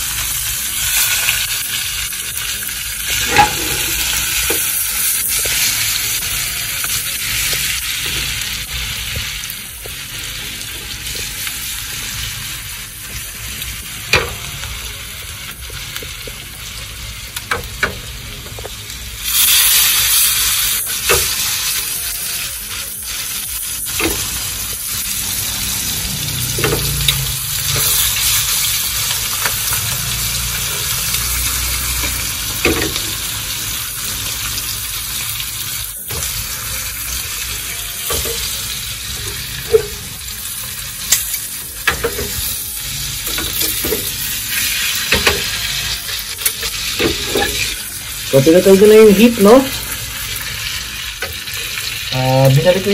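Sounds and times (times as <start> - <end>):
steaks sizzling in a pan: 0.0 - 52.9
metal tongs scraping a pan: 3.0 - 6.2, 23.9 - 33.3, 38.0 - 50.5.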